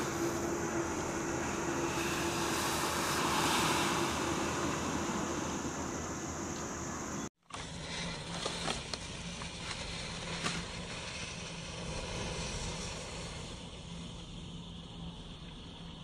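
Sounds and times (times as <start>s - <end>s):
fire rushing from bottle: 1.4s - 5.7s.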